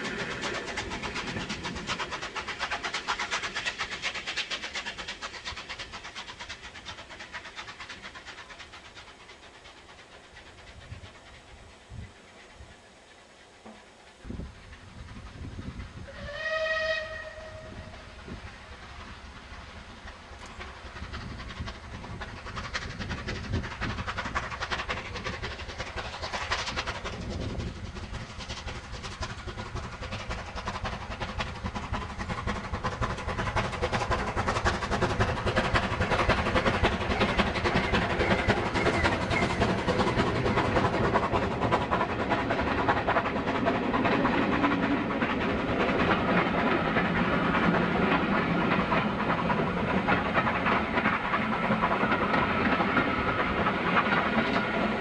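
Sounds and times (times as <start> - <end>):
train running past: 0.0 - 55.0
steam locomotive whistle: 16.0 - 18.1.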